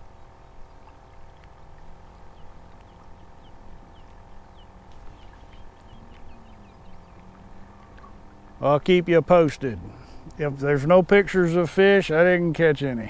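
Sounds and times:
bird chirping: 0:00.0 - 0:08.3
wind rumbling on microphone: 0:00.0 - 0:08.6
faint steady hum: 0:00.0 - 0:13.0.

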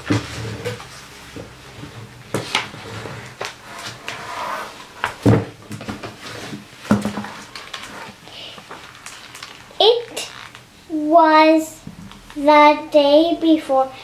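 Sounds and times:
paper rustling: 0:06.1 - 0:10.6
book cover and pages knocking: 0:06.8 - 0:07.6.

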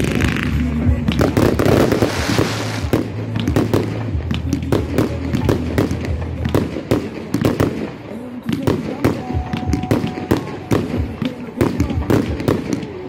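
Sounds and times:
fireworks crackling: 0:00.0 - 0:13.0.

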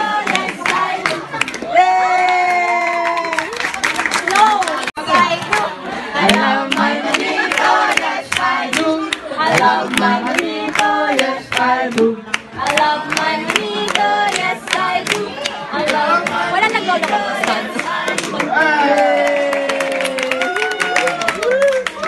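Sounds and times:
group of people singing: 0:00.0 - 0:01.8, 0:05.0 - 0:19.2
people clapping along: 0:00.0 - 0:22.0.

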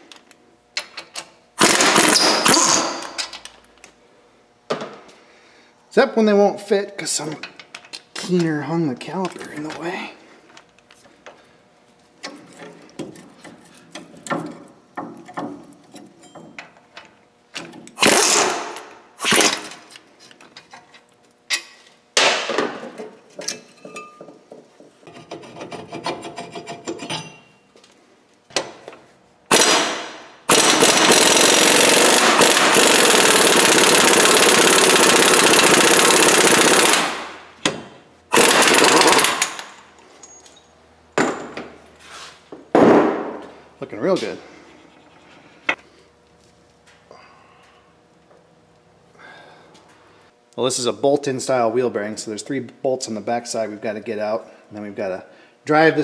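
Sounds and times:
pneumatic impact wrench bursts: 0:01.6 - 0:03.3, 0:18.0 - 0:19.8, 0:29.5 - 0:37.4, 0:38.3 - 0:39.8.

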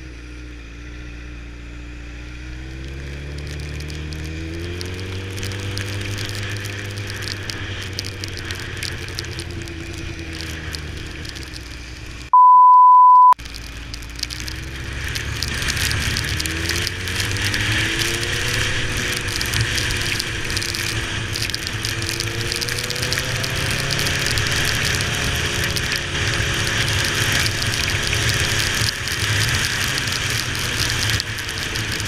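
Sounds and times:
motorcycle engine revving: 0:00.0 - 0:12.3, 0:13.5 - 0:32.0
wind and rain noise: 0:02.2 - 0:12.4, 0:13.4 - 0:32.0
steady beep tone: 0:12.3 - 0:13.4.

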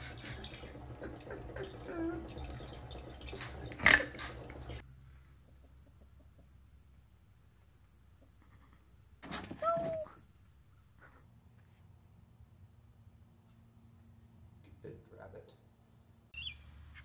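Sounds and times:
faint high whine: 0:04.8 - 0:11.3.

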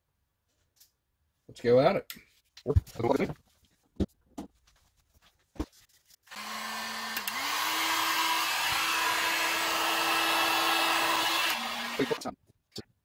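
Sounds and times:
heat gun blowing air: 0:06.3 - 0:12.2.

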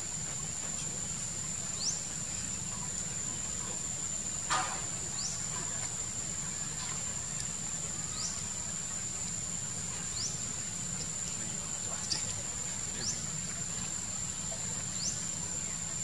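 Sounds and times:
insect drone: 0:00.0 - 0:16.0.

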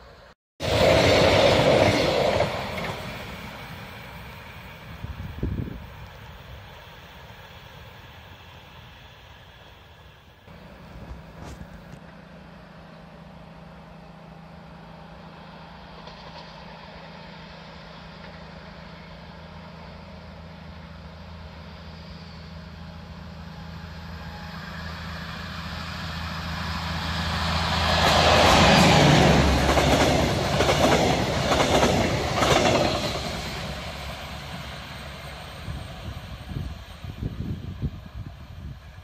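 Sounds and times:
train rumble: 0:00.0 - 0:39.0
train wheel clatter: 0:27.9 - 0:34.2.

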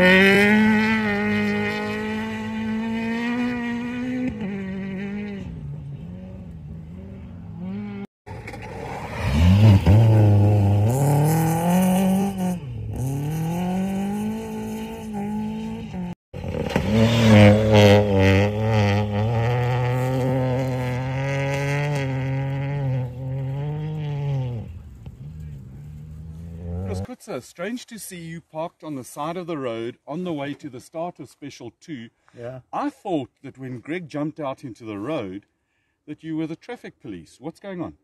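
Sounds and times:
rally car engines revving: 0:00.0 - 0:27.1.

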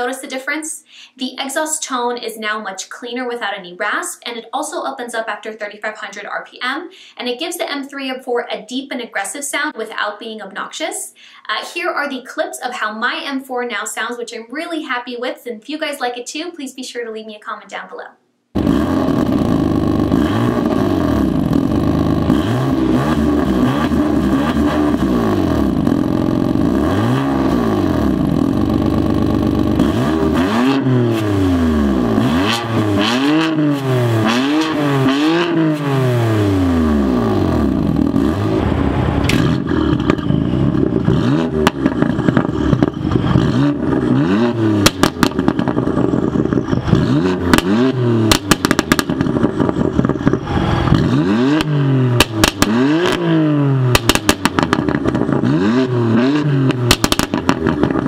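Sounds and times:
exhaust pops and crackles: 0:18.6 - 0:31.3, 0:37.4 - 0:53.2, 0:53.9 - 0:55.6, 0:56.7 - 0:58.0
car engine revving: 0:18.6 - 0:58.0.

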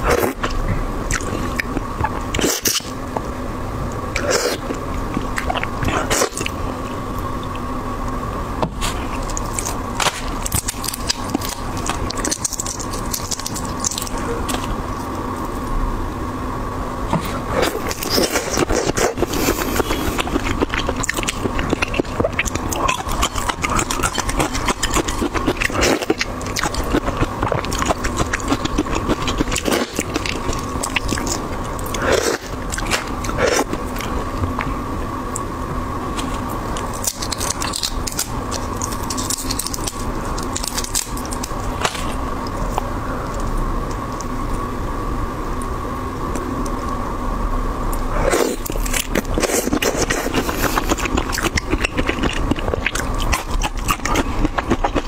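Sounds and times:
faint steady hum: 0:00.0 - 0:55.0
prawn shell cracking and peeling: 0:09.1 - 0:15.2, 0:36.2 - 0:43.5.

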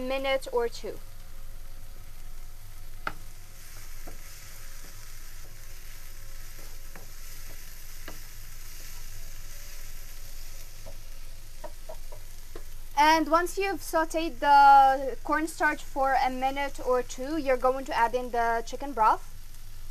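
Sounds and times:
vegetables sizzling in a frying pan: 0:00.0 - 0:19.9
wooden spoon knocking and scraping pan: 0:03.1 - 0:09.0, 0:10.6 - 0:12.7.

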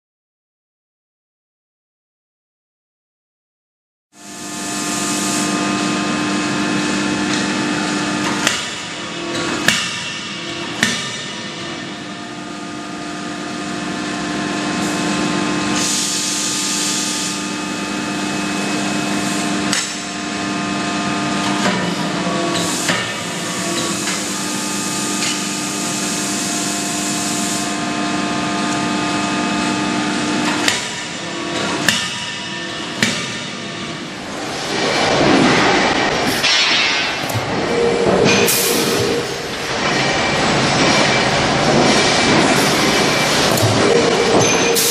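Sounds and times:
machinery hum: 0:04.2 - 0:44.9
forging hammer blows: 0:30.4 - 0:44.9.

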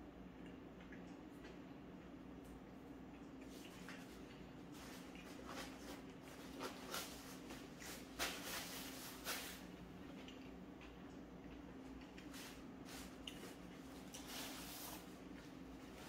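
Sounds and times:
faint low hum: 0:00.0 - 0:16.0
paper napkin rustling: 0:04.7 - 0:09.7, 0:12.4 - 0:16.0.

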